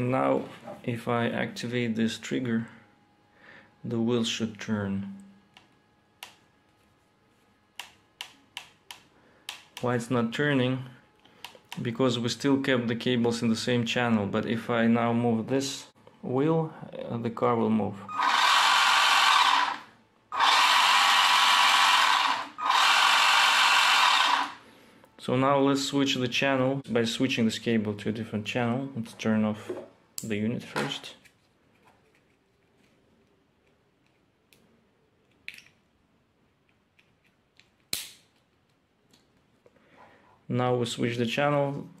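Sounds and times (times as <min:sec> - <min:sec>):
toy car electric motor whirring: 0:18.1 - 0:24.6.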